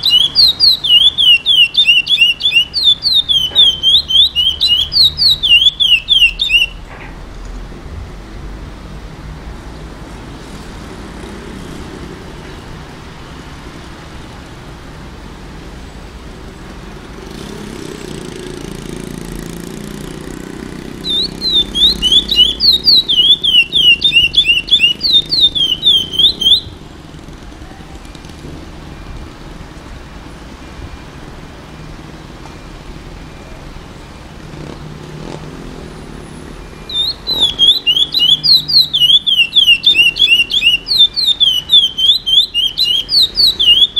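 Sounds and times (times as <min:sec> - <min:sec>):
finch singing whistled notes: 0:00.0 - 0:06.8, 0:21.0 - 0:26.8, 0:36.8 - 0:43.9.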